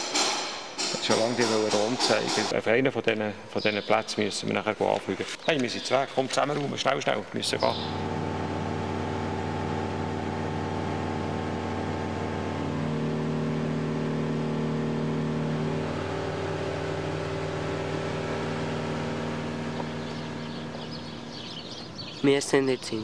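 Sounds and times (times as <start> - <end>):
aircraft engine and propeller droning: 7.6 - 22.9.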